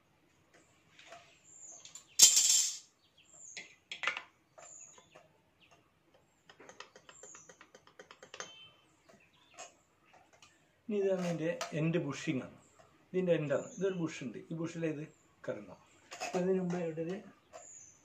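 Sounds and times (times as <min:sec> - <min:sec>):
birds chirping: 0:00.4 - 0:18.0
metal parts clicking and rattling: 0:01.8 - 0:02.9.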